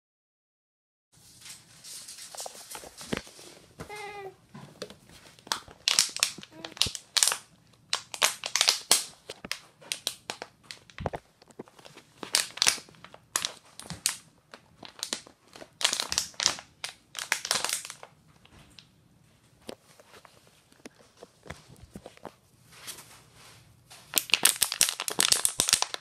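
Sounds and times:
plastic bottle crinkling: 2.0s - 18.1s, 24.1s - 26.0s.

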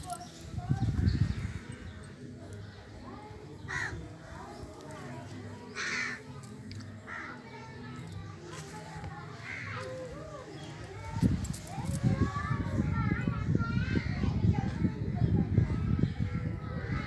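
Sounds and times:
crow cawing: 5.8s - 6.2s.

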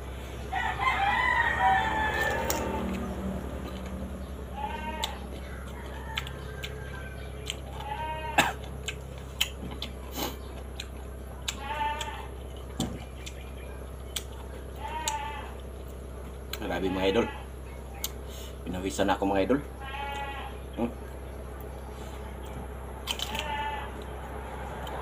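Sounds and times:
crunchy chewing: 0.4s - 19.0s, 19.6s - 25.0s
farm animal bleating: 0.9s - 5.8s, 6.7s - 9.0s, 11.4s - 13.7s, 14.3s - 18.2s, 18.8s - 21.0s, 23.1s - 24.2s.

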